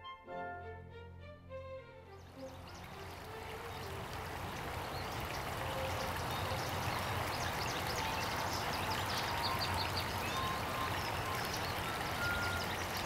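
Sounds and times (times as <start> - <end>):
running water hiss: 2.2 - 13.0
high bird chirps: 7.4 - 13.0.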